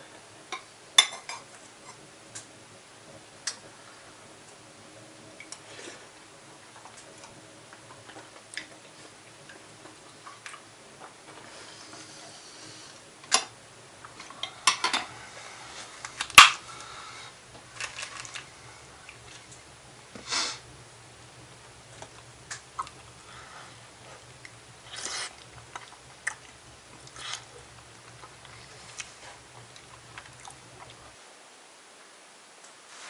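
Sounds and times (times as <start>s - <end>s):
chewing: 22.0s - 31.1s.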